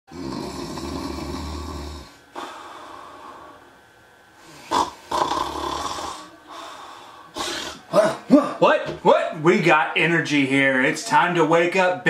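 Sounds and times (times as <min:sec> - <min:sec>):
man snoring: 0:00.1 - 0:03.6, 0:04.4 - 0:06.4
sharp snort: 0:04.5 - 0:06.3, 0:07.4 - 0:08.2.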